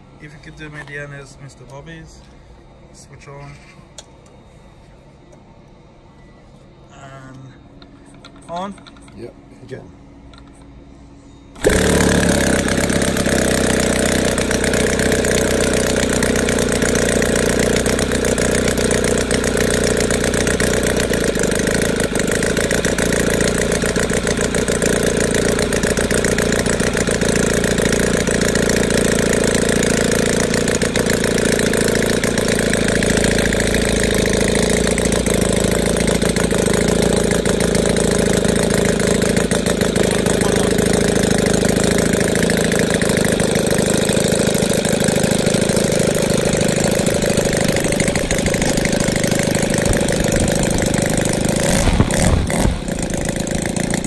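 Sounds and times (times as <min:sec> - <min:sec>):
engine turning a propeller: 0:11.6 - 0:54.0.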